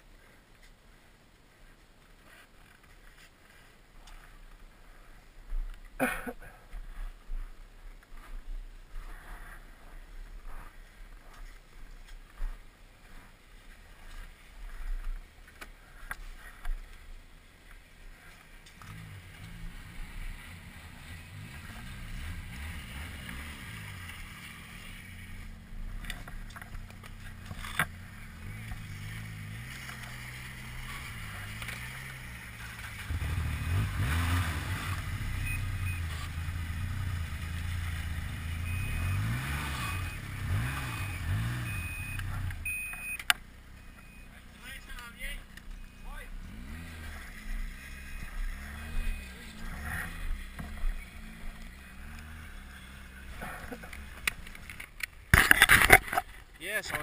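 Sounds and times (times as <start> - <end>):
snowmobile engines running: 6.0 - 57.0
snowmobile revving past: 18.9 - 25.4, 28.2 - 42.8, 46.2 - 54.0.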